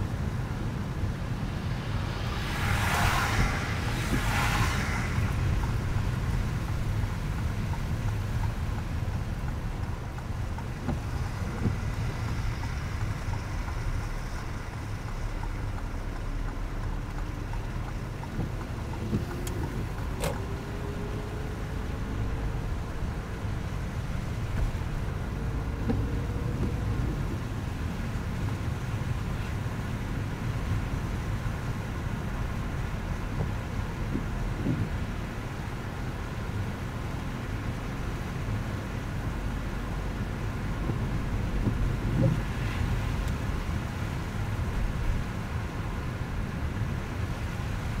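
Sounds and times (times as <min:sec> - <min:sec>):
tyre and road rumble: 0:00.0 - 0:48.0.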